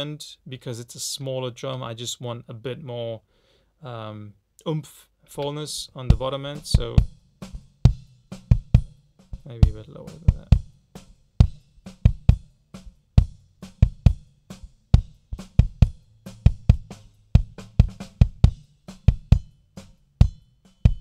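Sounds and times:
kick drum hits: 11.4 - 12.5, 13.2 - 14.2, 15.0 - 19.5.

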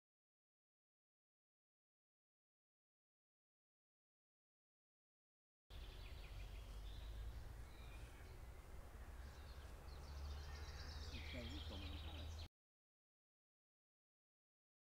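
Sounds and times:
low wind rumble: 5.7 - 12.5
songbirds chirping and trilling: 5.7 - 12.5.

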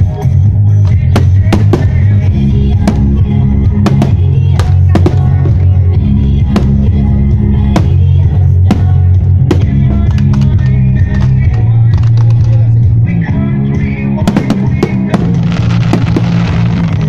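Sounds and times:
loud music with heavy bass: 0.0 - 17.0
firework shells bursting: 14.3 - 17.0.

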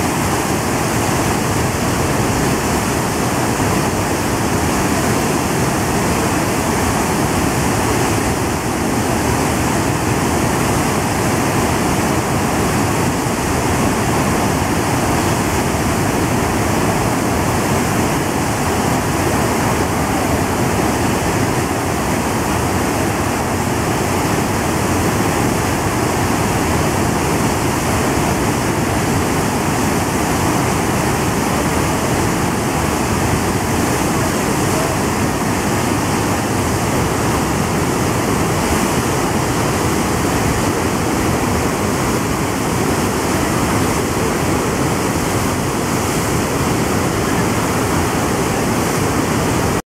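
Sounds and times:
rushing white water: 0.0 - 49.8.

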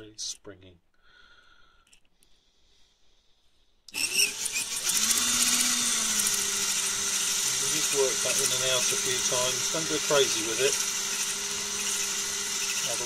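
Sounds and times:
drill whirring: 3.9 - 13.0
hone stones grinding on metal: 7.2 - 13.0.

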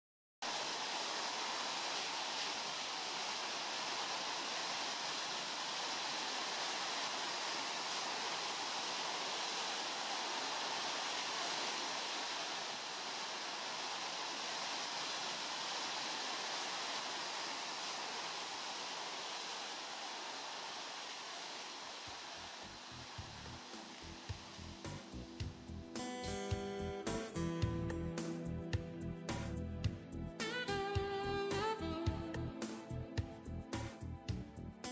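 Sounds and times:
sea water rushing: 0.4 - 26.8.

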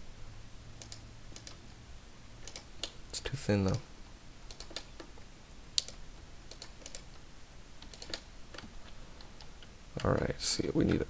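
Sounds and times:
keyboard and mouse clicks: 0.8 - 1.6, 2.4 - 3.0, 3.6 - 3.8, 4.5 - 5.2, 5.8 - 7.2, 7.8 - 11.0.

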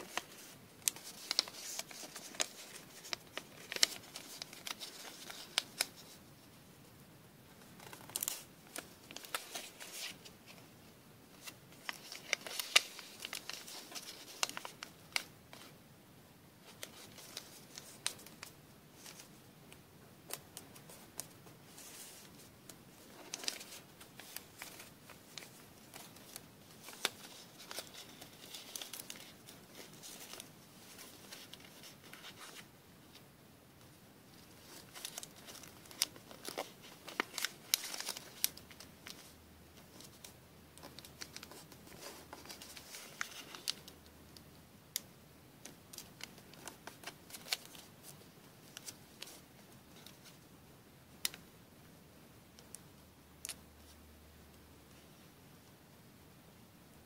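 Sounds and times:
paper rustling and crinkling: 0.0 - 6.2, 7.5 - 10.7, 11.3 - 15.8, 16.6 - 19.4, 20.3 - 33.2, 34.4 - 44.0, 45.6 - 50.4.

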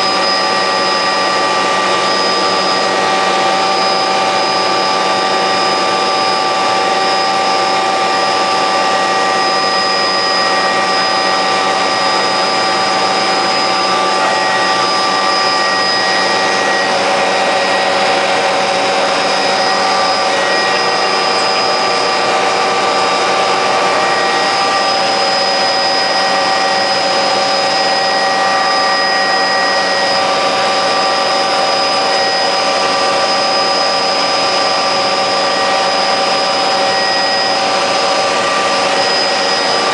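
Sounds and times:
helicopter engine and rotors: 0.0 - 39.9
steady whining tones: 0.0 - 39.9.

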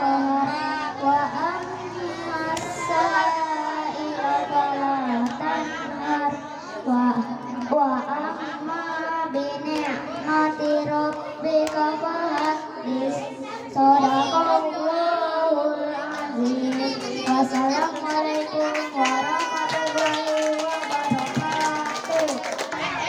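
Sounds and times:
boy singing into a microphone: 0.0 - 23.0
sharp claps or taps: 17.4 - 22.8.

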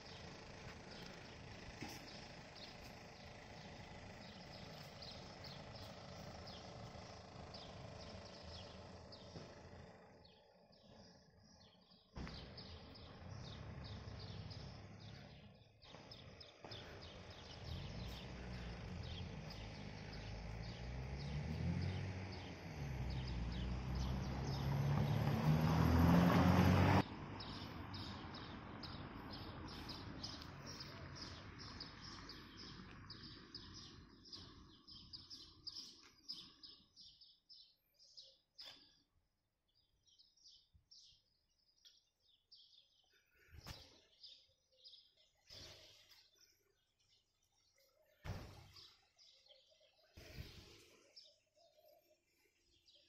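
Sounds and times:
vehicle engine accelerating: 0.0 - 36.8
small birds chirping: 0.0 - 53.0.

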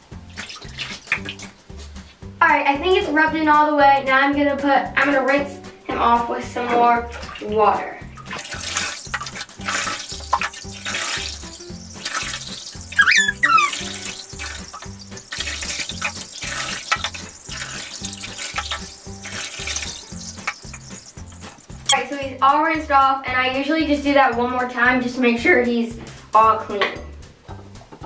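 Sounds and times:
water pouring and splashing: 0.0 - 2.2, 7.0 - 22.0
background music with steady beat: 0.0 - 28.0.

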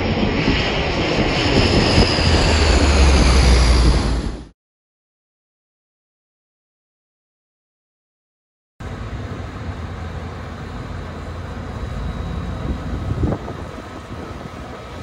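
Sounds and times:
wind on microphone: 0.0 - 4.4, 12.4 - 15.0
road traffic rumble: 8.8 - 15.0.

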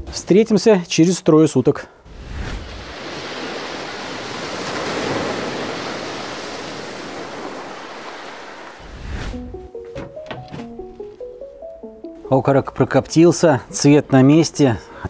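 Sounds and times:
sea wave washing onto shore: 2.1 - 9.6.

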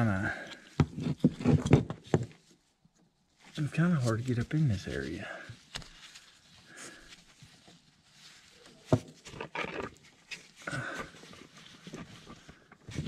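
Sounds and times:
man grunting and breathing: 10.6 - 11.2.

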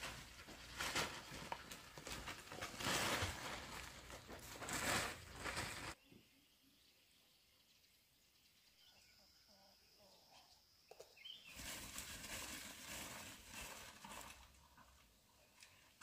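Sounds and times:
rough rustling scraping: 0.0 - 6.0, 11.4 - 15.1
faint bird chirps: 6.0 - 11.7.

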